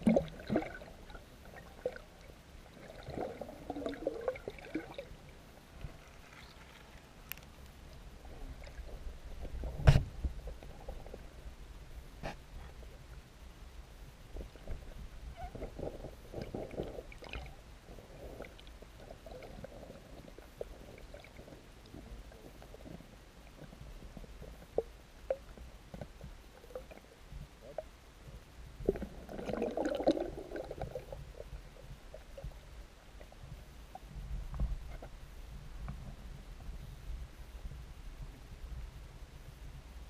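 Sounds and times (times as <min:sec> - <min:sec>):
muffled underwater rumble: 0:00.0 - 0:40.0
muffled water swish: 0:00.0 - 0:40.0
small clicks and ticks: 0:05.8 - 0:08.1.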